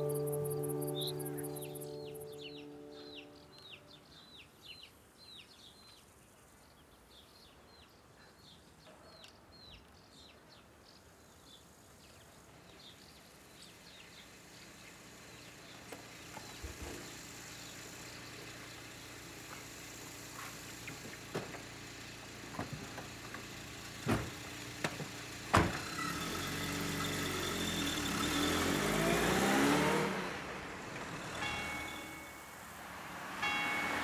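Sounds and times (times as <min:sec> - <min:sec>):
car engine pulling away: 0:13.6 - 0:34.0
car doors shutting: 0:24.0 - 0:26.1.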